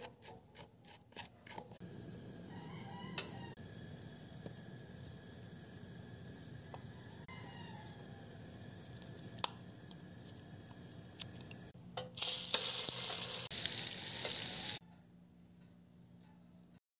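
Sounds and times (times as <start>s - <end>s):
meat sizzling in hot oil: 3.7s - 14.8s.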